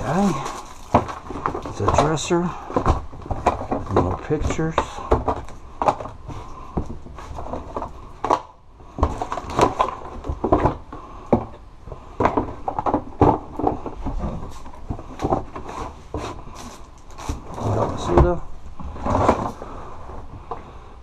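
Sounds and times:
objects knocking on wood: 0:00.0 - 0:16.3.

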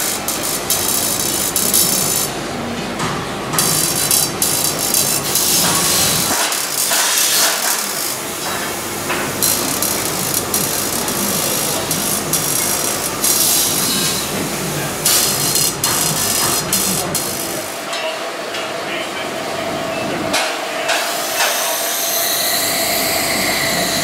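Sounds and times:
marking pin buzzing on metal: 0:00.0 - 0:02.3, 0:03.6 - 0:08.2, 0:09.4 - 0:14.2, 0:15.0 - 0:17.7.

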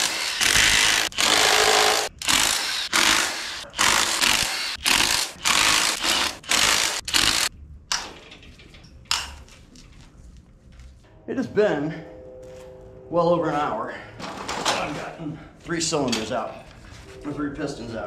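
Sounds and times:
impact wrench hammering: 0:00.0 - 0:08.1.

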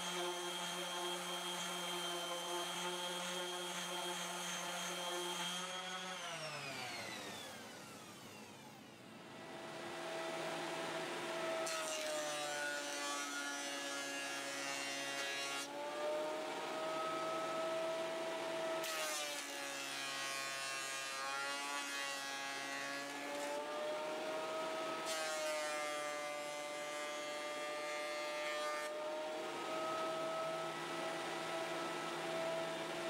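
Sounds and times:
hissing wood cutting noise: 0:00.0 - 0:33.0
planer motor whine: 0:05.9 - 0:11.6, 0:28.9 - 0:33.0.

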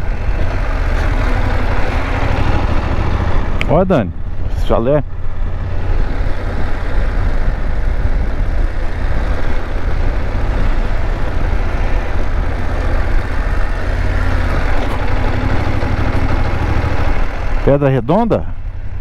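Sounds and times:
motorcycle engine rumbling: 0:00.0 - 0:19.0.

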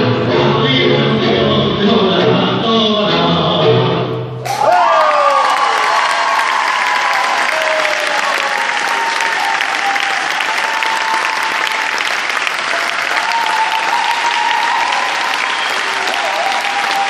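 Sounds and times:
audience applauding: 0:04.5 - 0:17.0.

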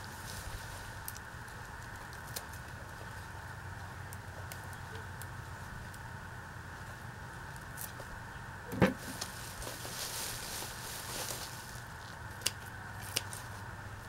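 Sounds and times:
leaves rustling: 0:00.0 - 0:08.2, 0:08.9 - 0:14.0
pruning shears snipping stalks: 0:12.3 - 0:13.5.

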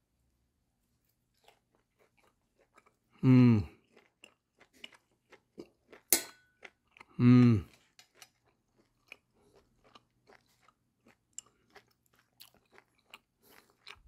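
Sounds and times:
chewing with wet mouth clicks: 0:01.4 - 0:03.1, 0:03.7 - 0:14.0
man humming mmm: 0:03.2 - 0:03.8, 0:07.1 - 0:07.7
knife clinking on ceramic plate: 0:06.1 - 0:06.5.

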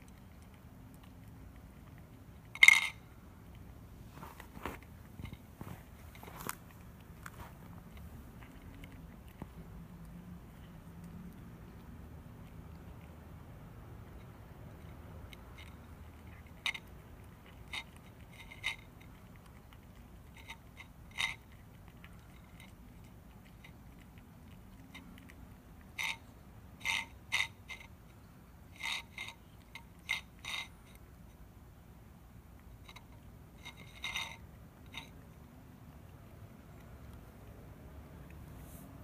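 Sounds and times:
cat crunching food: 0:00.0 - 0:39.0.

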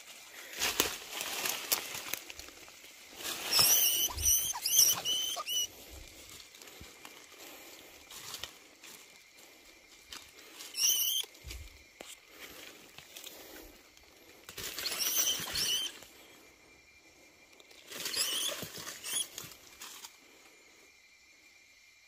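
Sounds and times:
mouse squeaking: 0:03.5 - 0:05.7, 0:10.7 - 0:11.3, 0:14.7 - 0:16.0, 0:18.0 - 0:19.4
rustling in a wire trap: 0:14.5 - 0:16.0, 0:17.9 - 0:20.1.

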